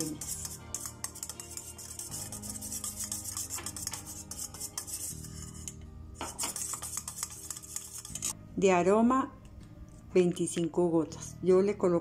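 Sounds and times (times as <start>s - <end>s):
wire whisk scraping metal pot: 0.0s - 8.4s.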